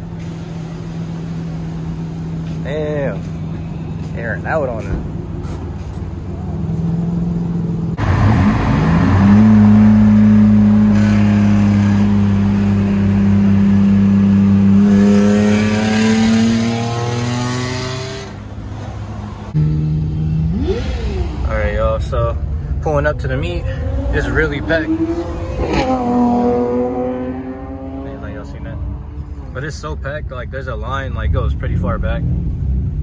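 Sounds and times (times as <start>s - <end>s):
car engine revving: 6.2s - 22.4s, 23.0s - 29.9s.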